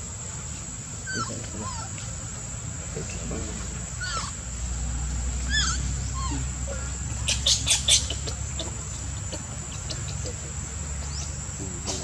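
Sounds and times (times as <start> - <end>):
monkey crying sharply: 1.0 - 2.0, 4.0 - 4.4, 5.4 - 9.0
baby monkey squeaking: 1.1 - 1.9, 4.0 - 4.4, 5.5 - 9.0.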